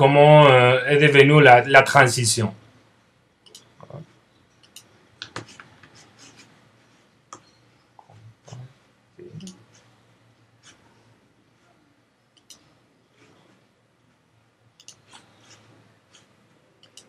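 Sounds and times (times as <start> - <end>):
mouse and keyboard clicks: 14.8 - 17.0.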